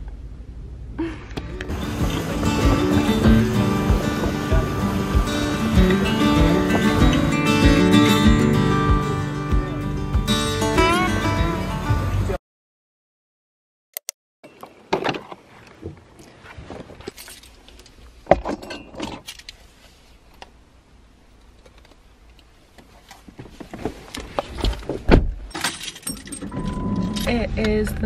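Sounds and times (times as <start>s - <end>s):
rustling and light clinks: 15.6s - 20.0s, 25.5s - 28.0s.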